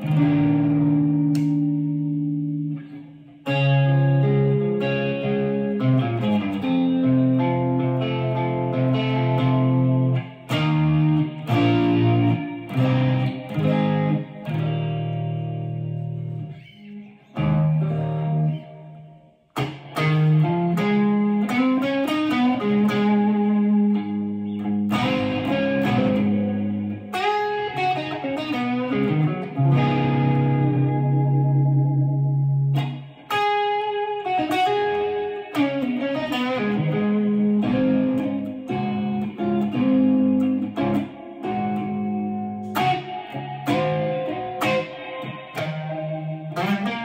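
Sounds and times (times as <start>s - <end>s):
electric guitar through amplifier: 0.0s - 47.0s.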